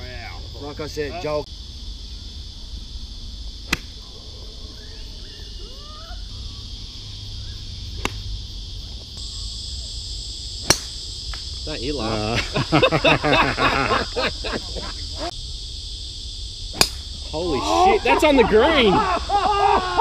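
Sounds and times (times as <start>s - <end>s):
high insect drone: 0.0s - 20.0s
golf club striking ball: 3.7s - 4.0s, 8.0s - 8.3s, 10.6s - 11.5s, 16.7s - 17.2s.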